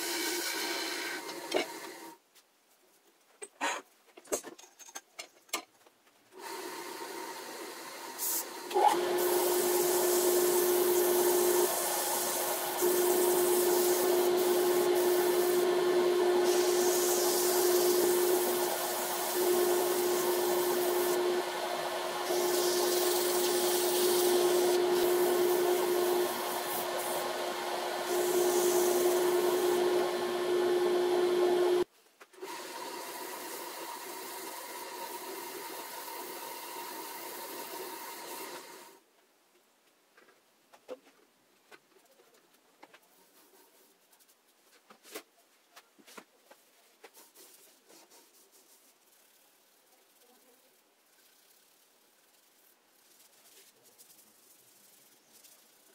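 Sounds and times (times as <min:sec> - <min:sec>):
wood lathe humming: 0:00.0 - 0:02.0, 0:06.4 - 0:38.8
sandpaper rubbing on spinning wood: 0:09.0 - 0:30.1, 0:47.2 - 0:55.9.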